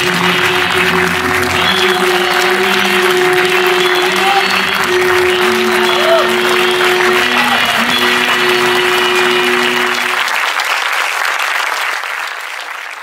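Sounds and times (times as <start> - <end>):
held music chord: 0.0 - 10.2
audience applauding: 0.0 - 13.0.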